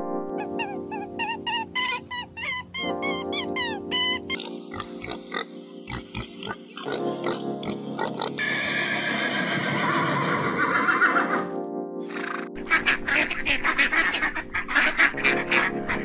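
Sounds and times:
background music: 0.0 - 16.0
piglets squealing: 0.4 - 11.4.

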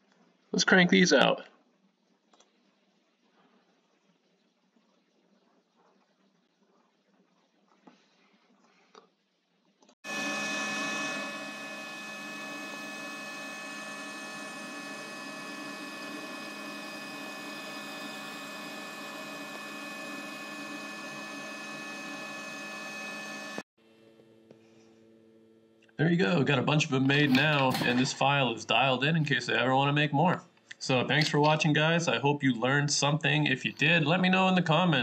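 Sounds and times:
laser engraver whirring: 10.0 - 23.7.

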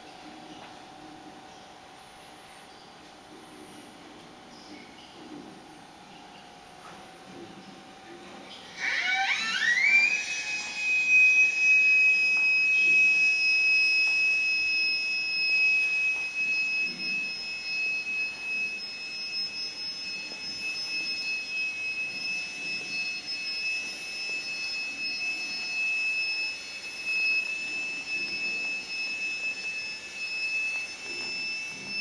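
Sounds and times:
high whistling tone: 8.7 - 32.0.

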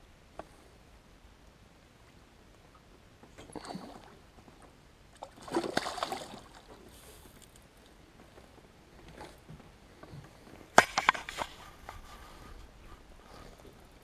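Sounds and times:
water splashing: 5.1 - 6.9.

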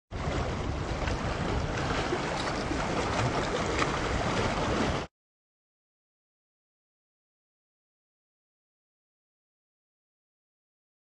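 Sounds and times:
small waves splashing on rocks: 0.2 - 5.1.

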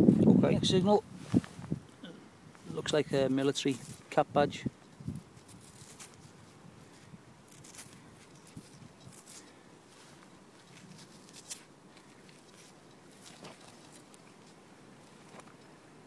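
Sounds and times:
quiet hiss: 0.0 - 16.0.

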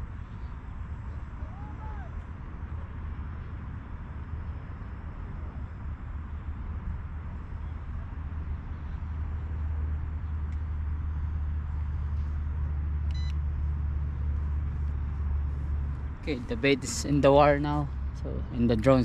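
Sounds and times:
wind rumble on microphone: 0.0 - 19.0
remote controller beep: 13.1 - 13.4.

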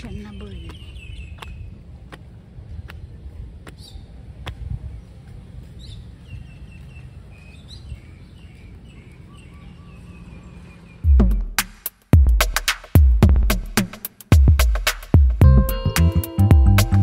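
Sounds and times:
small birds chirping: 0.0 - 11.6
electronic music with drum beat: 11.1 - 17.0.

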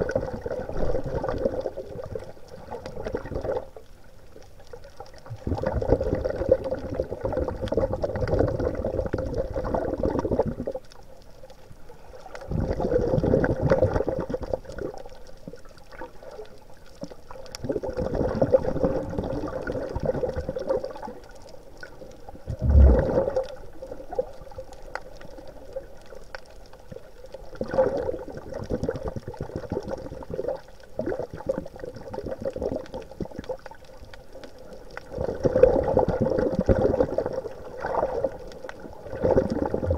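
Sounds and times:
water sloshing and bubbling: 0.0 - 39.9
water rush: 22.5 - 23.8.

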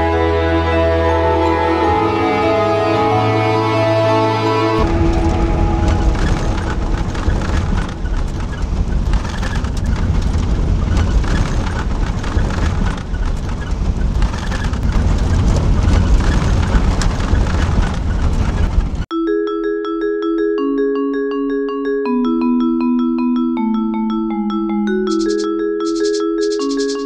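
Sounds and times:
van engine and road noise: 4.0 - 19.1.

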